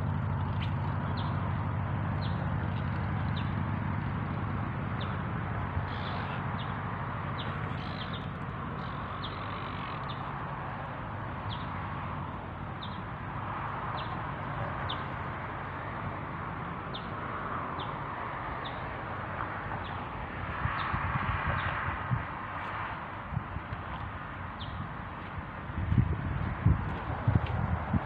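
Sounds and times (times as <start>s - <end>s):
birds chirping: 0.1s - 16.2s, 16.8s - 19.0s, 19.7s - 20.1s, 23.9s - 25.3s.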